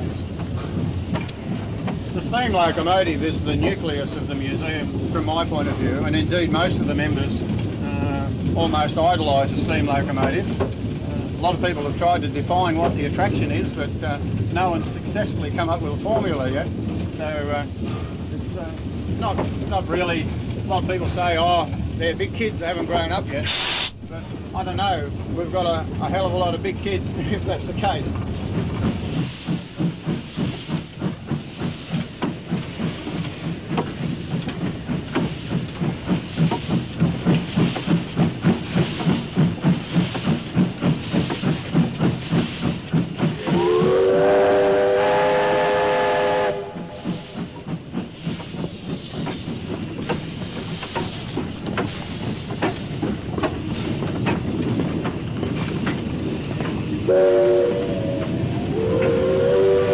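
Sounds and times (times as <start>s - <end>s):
hiss of steam: 0.0s - 10.2s, 22.3s - 24.0s, 24.6s - 59.9s
steam locomotive exhaust beating: 0.0s - 59.9s
steam whistle chord: 43.6s - 46.9s, 57.1s - 58.1s, 58.7s - 59.9s.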